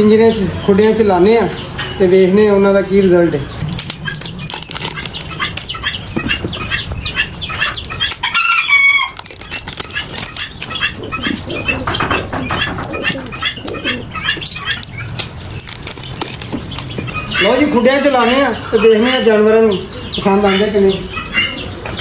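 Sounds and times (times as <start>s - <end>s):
birds calling: 0.0s - 22.0s
clicks and rattles: 3.7s - 6.6s, 9.0s - 10.9s, 14.7s - 17.1s
wings flapping: 9.0s - 17.0s.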